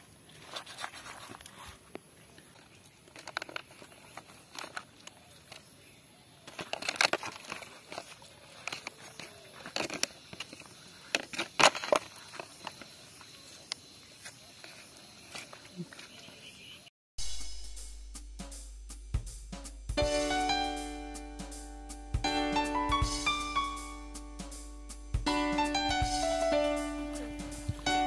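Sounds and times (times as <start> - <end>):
leaf crackling: 25.5 - 28.0.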